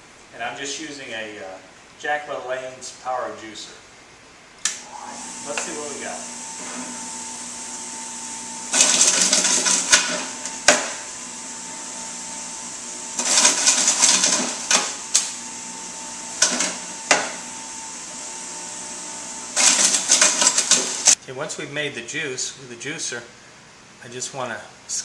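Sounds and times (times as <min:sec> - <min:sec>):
juicer motor humming: 0:04.7 - 0:21.2
juicer grinding grapes: 0:04.8 - 0:21.2.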